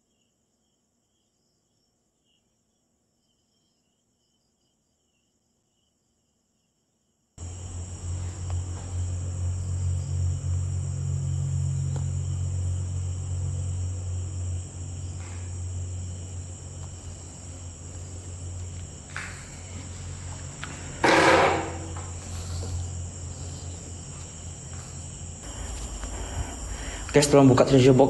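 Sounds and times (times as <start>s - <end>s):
night insects chirring: 0.0s - 28.0s
low hum: 7.4s - 28.0s.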